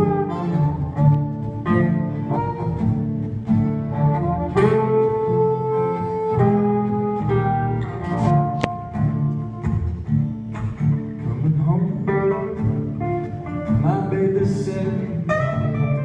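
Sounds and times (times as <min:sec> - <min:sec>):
harmonica bending notes: 0:00.0 - 0:10.7
strummed acoustic guitars: 0:00.0 - 0:16.0.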